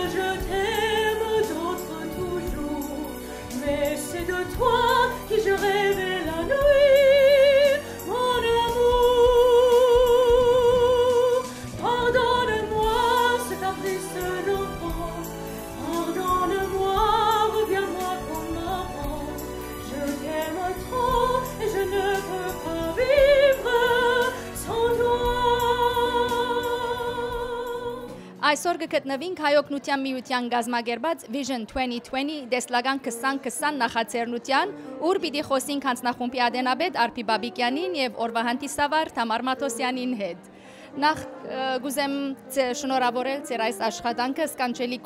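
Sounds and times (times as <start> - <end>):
woman singing with vibrato: 0.0 - 28.6.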